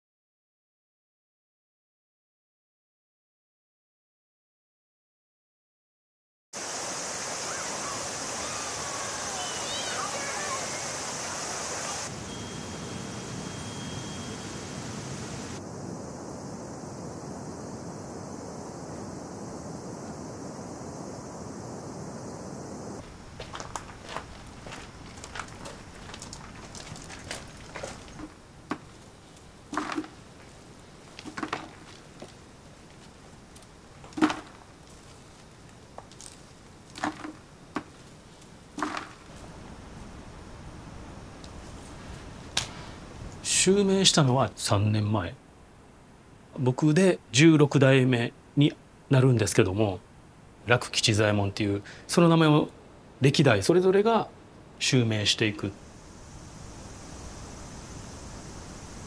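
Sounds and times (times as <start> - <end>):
river water flowing: 6.6 - 17.0
outdoor ambient hiss: 6.6 - 59.0
street ambience: 7.3 - 39.7
faint steady high tone: 7.4 - 15.6
soft knocks and crumbly scrapes: 23.0 - 39.5.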